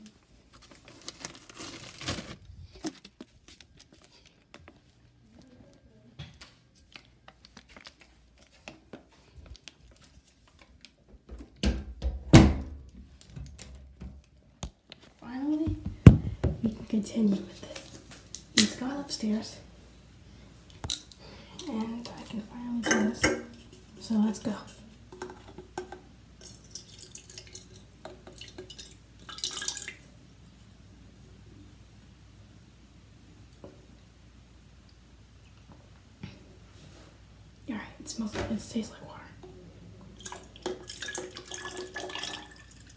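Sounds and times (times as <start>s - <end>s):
heavy thumps: 15.7s - 16.7s
water pouring into a can: 26.4s - 30.0s, 40.2s - 42.9s.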